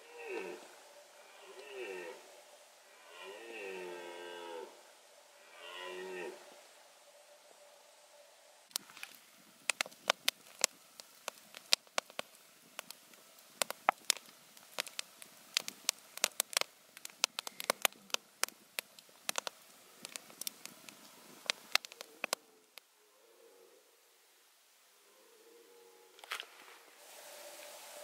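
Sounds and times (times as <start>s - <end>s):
hiss of burning logs: 0.0s - 22.9s, 26.2s - 28.0s
campfire crackling and popping: 8.7s - 22.9s.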